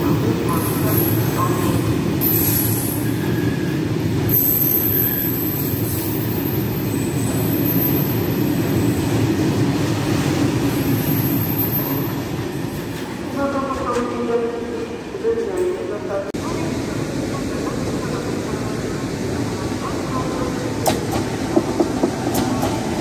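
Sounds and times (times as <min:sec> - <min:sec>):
train wheels rumbling on rails: 0:17.4 - 0:23.0.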